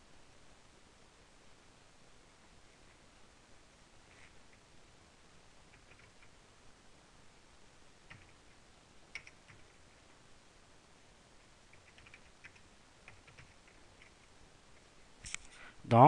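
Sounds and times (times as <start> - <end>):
computer keyboard typing: 5.7 - 6.4, 8.0 - 8.5, 9.1 - 9.8, 11.7 - 14.3.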